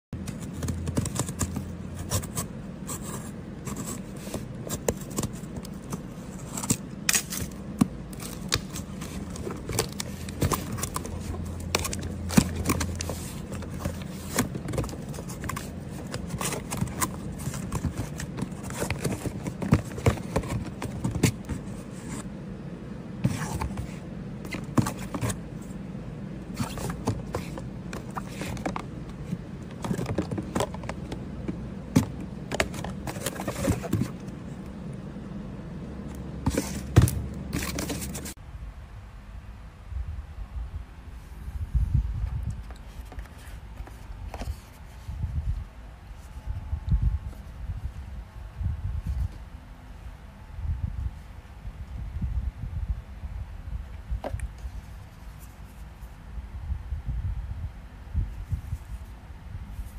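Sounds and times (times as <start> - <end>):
low steady hum: 0.2 - 59.9.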